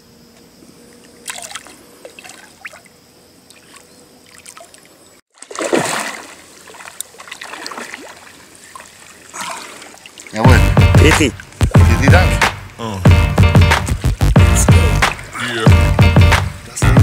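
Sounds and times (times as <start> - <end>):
fish splashing in water: 1.1 - 10.4.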